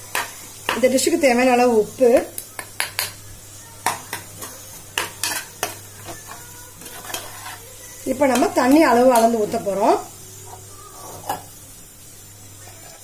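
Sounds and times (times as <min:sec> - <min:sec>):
light sizzle: 0:00.0 - 0:13.0
metal spoon scraping a pot: 0:04.4 - 0:09.5, 0:12.6 - 0:13.0.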